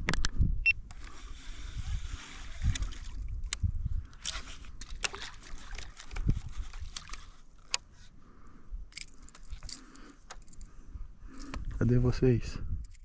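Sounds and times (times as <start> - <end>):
fishing tackle clicking: 8.9 - 10.7.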